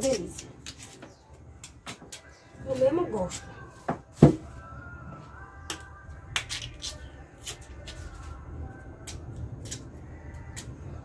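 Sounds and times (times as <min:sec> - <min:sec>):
knife scraping peel: 0:06.4 - 0:08.2.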